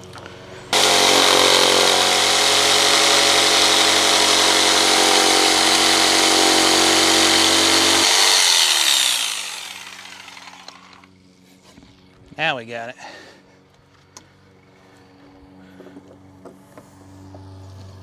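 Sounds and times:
jigsaw cutting wood: 0:00.7 - 0:11.0
motor winding down: 0:00.7 - 0:11.1.

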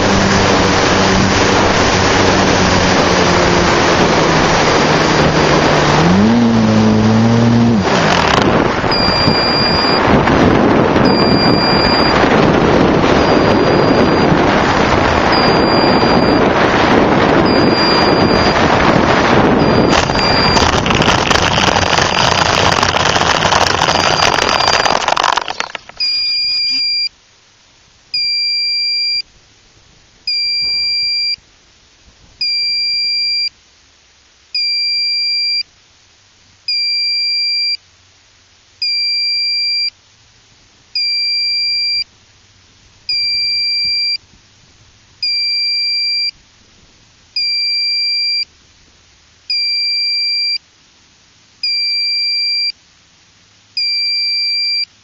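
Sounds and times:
model plane motor and wind: 0:00.0 - 0:26.9, 0:43.1 - 0:44.3
high two-tone electronic beep: 0:08.9 - 0:10.0, 0:11.0 - 0:12.2, 0:13.1 - 0:14.4, 0:15.3 - 0:16.4, 0:17.4 - 0:18.6, 0:19.6 - 0:20.7, 0:25.4 - 0:27.1, 0:28.2 - 0:29.2, 0:30.3 - 0:31.4, 0:41.0 - 0:42.1, 0:43.1 - 0:44.2, 0:45.2 - 0:46.4, 0:47.4 - 0:48.5, 0:49.5 - 0:50.6, 0:51.6 - 0:52.8, 0:53.8 - 0:54.9.

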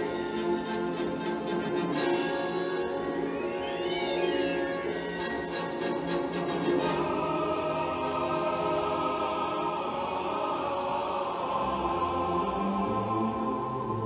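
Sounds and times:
orchestral music from vinyl record: 0:00.0 - 0:14.0.

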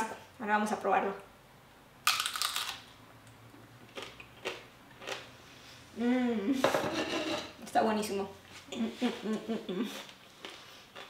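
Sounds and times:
crunchy bite: 0:02.0 - 0:02.9
person humming mmm: 0:06.0 - 0:06.6, 0:08.7 - 0:10.1.

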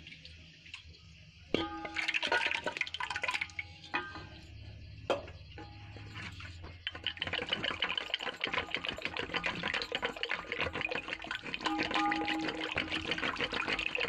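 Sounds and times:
whisk beating curd in a pot: 0:05.9 - 0:14.0.

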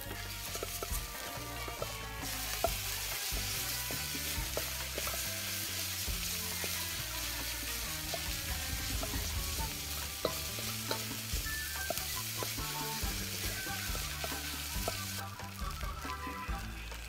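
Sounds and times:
spatula scraping wok: 0:00.0 - 0:16.4
noodles sizzling in a wok: 0:00.0 - 0:17.0.

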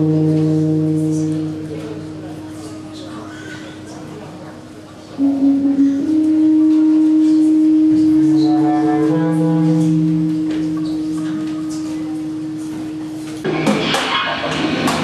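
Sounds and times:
bass clarinet long note: 0:00.0 - 0:03.0, 0:05.2 - 0:13.4
low sustained tones: 0:00.0 - 0:13.5.

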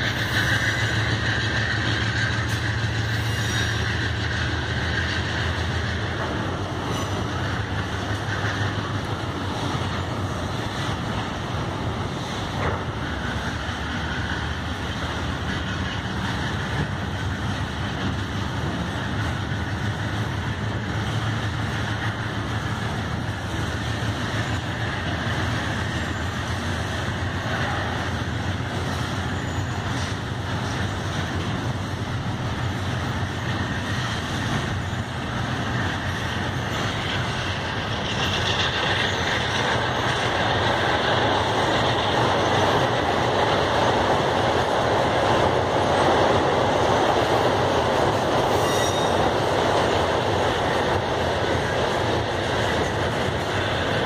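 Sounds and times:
train wheels rumbling on track: 0:00.0 - 0:54.0.

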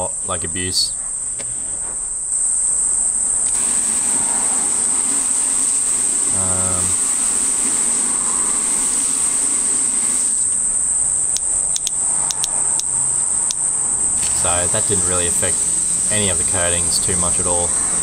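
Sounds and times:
high-pitched drone: 0:02.3 - 0:18.0
hose spray hissing: 0:02.4 - 0:11.3, 0:14.0 - 0:18.0.

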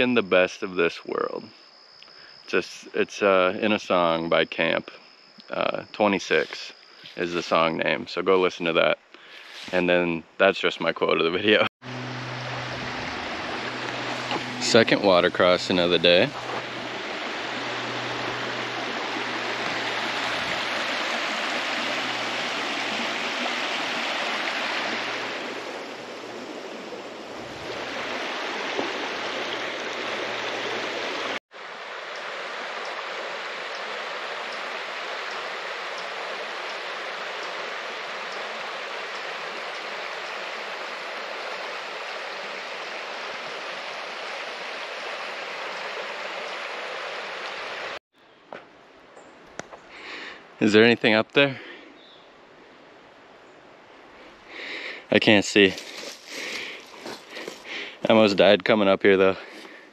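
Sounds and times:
stream rushing: 0:11.8 - 0:48.0.

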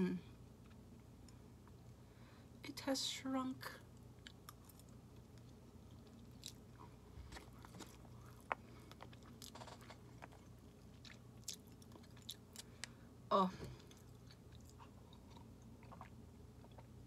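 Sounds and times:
faint chewing: 0:03.9 - 0:13.1, 0:13.7 - 0:17.0.

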